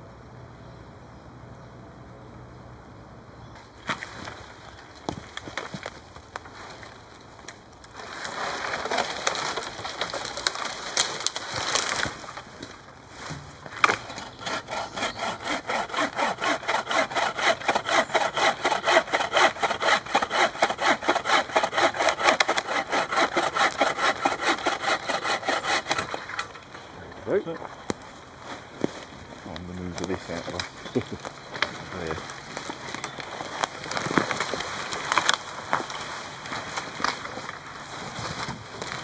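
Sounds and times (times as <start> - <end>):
wood cracking: 3.8 - 39.0
hand saw cutting wood: 13.8 - 26.6.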